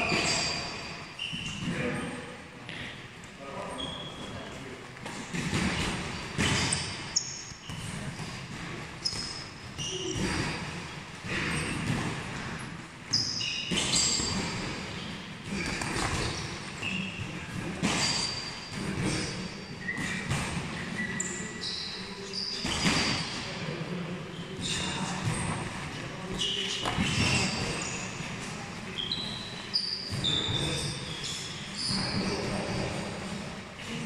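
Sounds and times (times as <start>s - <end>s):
shoes squeaking on floor: 0.0s - 3.0s, 3.7s - 4.5s, 5.1s - 10.6s, 13.1s - 23.4s, 26.3s - 28.3s, 28.9s - 33.1s.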